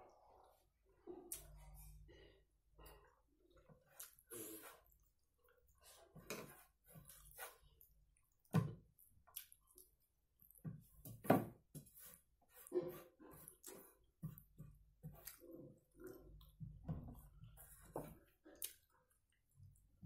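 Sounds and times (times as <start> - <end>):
wet chewing and lip smacks: 9.2 - 10.6, 18.5 - 19.5.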